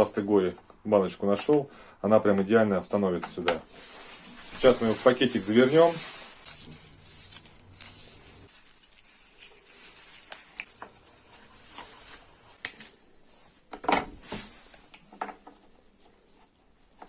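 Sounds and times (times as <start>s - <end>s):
plastic bag crinkling: 3.6s - 15.1s.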